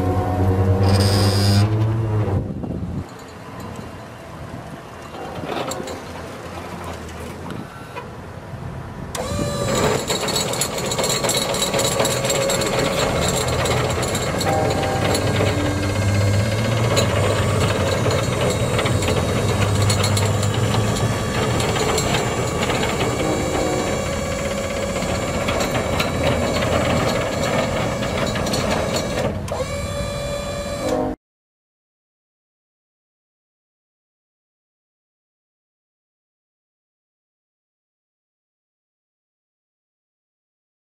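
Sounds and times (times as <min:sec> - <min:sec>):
liftgate motor whine and rattle: 0:00.0 - 0:04.0, 0:09.1 - 0:31.2
low hum: 0:12.3 - 0:28.2.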